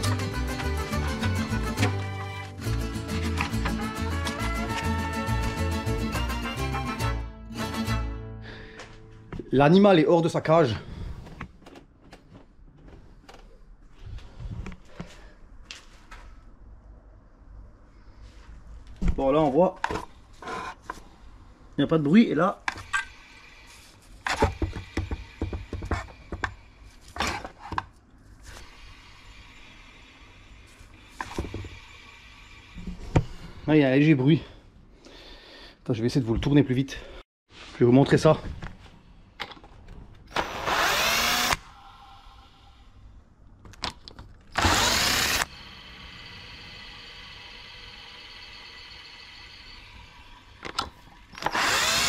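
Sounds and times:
power drill whine: 40.3 - 41.7, 44.5 - 50.5, 51.3 - 52.0.

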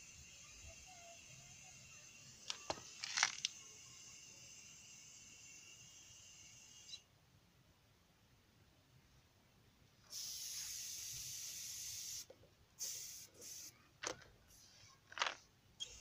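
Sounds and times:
compressed air hissing: 10.1 - 13.8.

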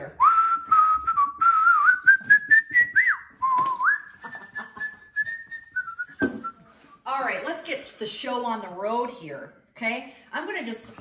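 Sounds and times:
person whistling a tune: 0.2 - 6.7.

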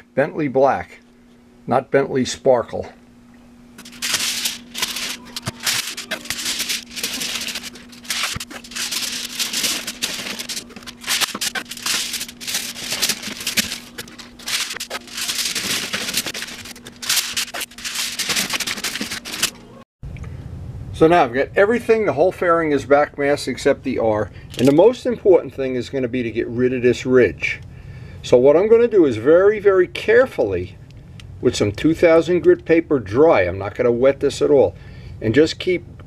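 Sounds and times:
faint steady hum: 0.0 - 36.0
foil crinkling: 3.8 - 19.8.

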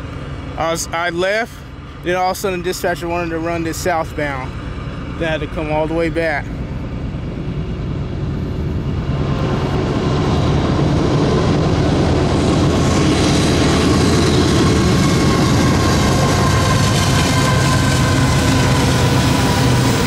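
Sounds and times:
diesel locomotive engine drone: 0.0 - 20.0
high whine: 0.0 - 20.0.

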